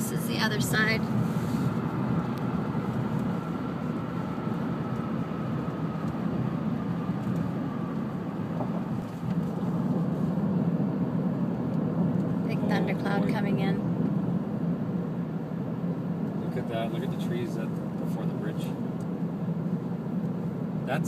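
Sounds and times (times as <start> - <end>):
road and tyre noise in car: 0.0 - 21.0.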